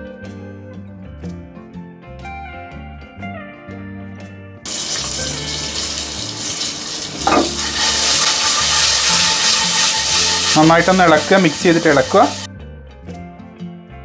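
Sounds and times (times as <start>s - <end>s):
soft guitar music: 0.0s - 14.0s
popcorn kernels sizzling in oil: 4.7s - 12.5s.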